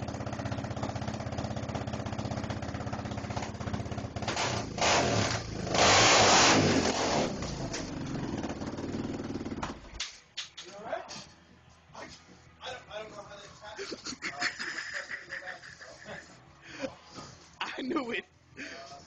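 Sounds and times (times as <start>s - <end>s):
quad engine idling and revving: 0.0s - 9.8s.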